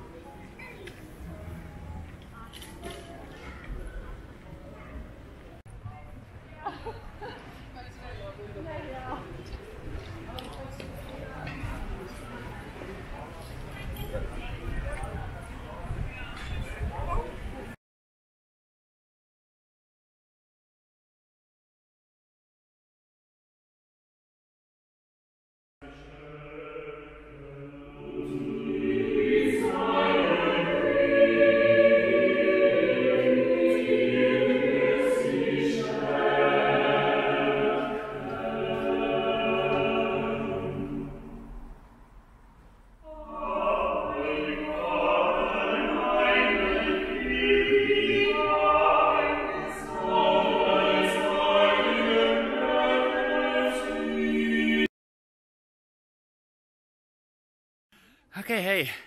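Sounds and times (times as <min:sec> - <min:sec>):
mixed choir singing: 0:25.8 - 0:41.6, 0:43.0 - 0:54.9.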